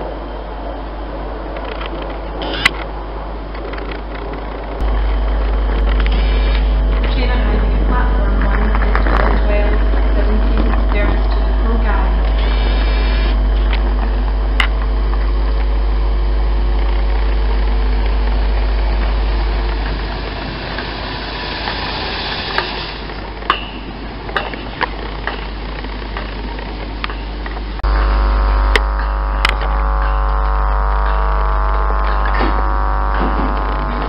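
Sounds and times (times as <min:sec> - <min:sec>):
electric train hum and rumble: 0:00.0 - 0:34.0
sharp clicks and knocks: 0:03.5 - 0:06.2.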